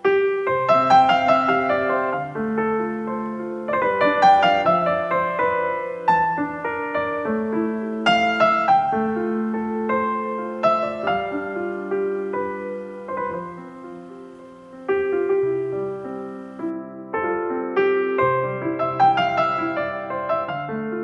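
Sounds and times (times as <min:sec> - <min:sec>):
gentle piano music: 0:00.0 - 0:21.0.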